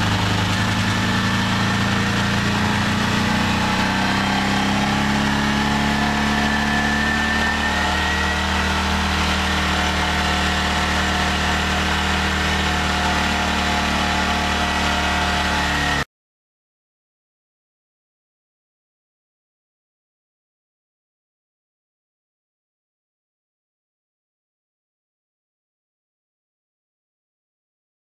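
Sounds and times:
engine running under load: 0:00.0 - 0:16.1.

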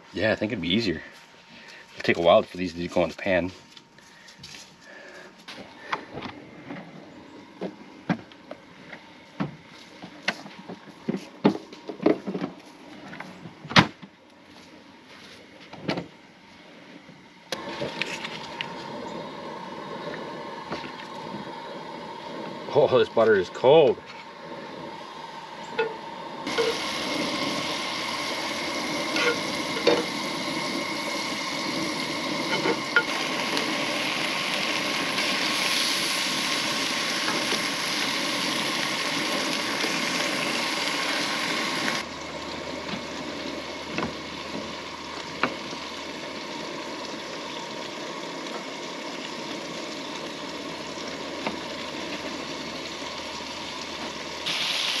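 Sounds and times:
food sizzling in frying pan: 0:24.2 - 0:55.0.

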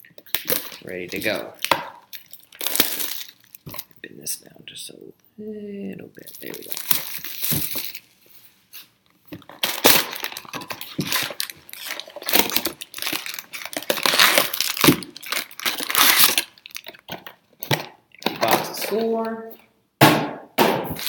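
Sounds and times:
plastic wrapping crinkling and tearing: 0:00.0 - 0:04.0, 0:06.2 - 0:08.2, 0:09.3 - 0:19.2
cardboard rustling: 0:06.3 - 0:16.5.

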